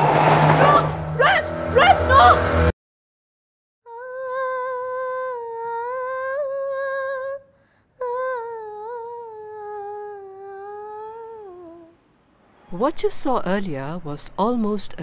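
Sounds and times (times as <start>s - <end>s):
person humming a slow melody: 3.9s - 12.0s.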